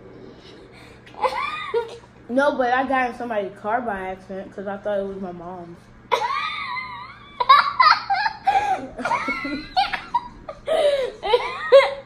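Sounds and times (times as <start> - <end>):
child laughing: 1.1 - 2.1, 6.1 - 12.0.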